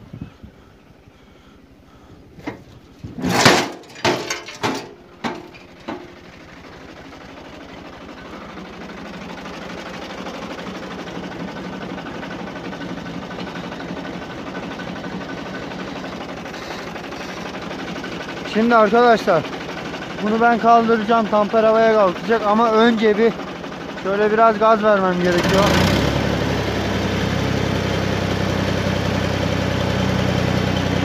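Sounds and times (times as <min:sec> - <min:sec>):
tractor diesel engine idling: 0:01.0 - 0:31.0
loud clattering knocks: 0:02.4 - 0:07.2.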